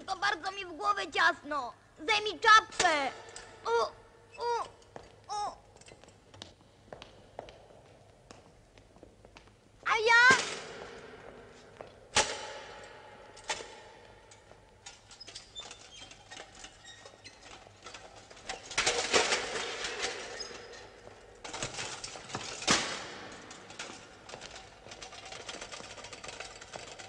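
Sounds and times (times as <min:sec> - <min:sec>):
metal armour clanking and rattling: 0:10.3 - 0:27.0.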